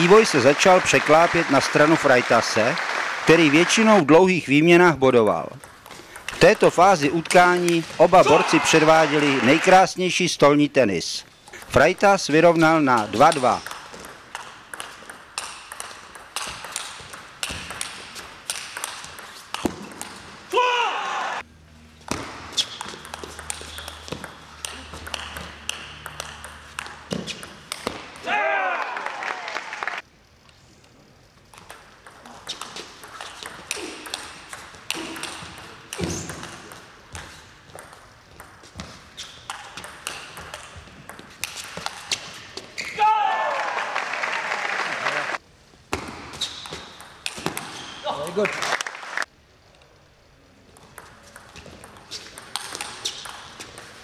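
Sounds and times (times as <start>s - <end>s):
table tennis ball bouncing: 5.5s - 9.6s, 11.7s - 20.4s, 22.1s - 28.3s, 31.6s - 42.4s, 45.9s - 48.0s, 50.7s - 54.0s
short shouts: 8.2s - 8.8s, 20.5s - 21.4s, 28.2s - 29.6s, 43.0s - 43.8s.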